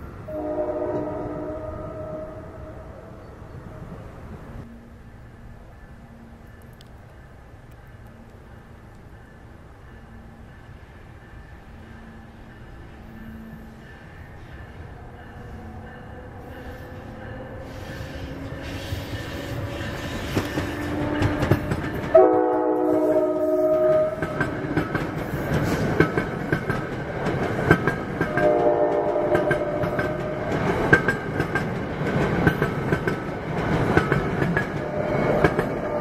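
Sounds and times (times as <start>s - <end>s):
train passing close by: 0.0s - 36.0s
locomotive horn chord: 0.3s - 3.1s, 20.8s - 24.4s, 28.3s - 30.4s
wheels clicking over rail joints: 18.6s - 36.0s.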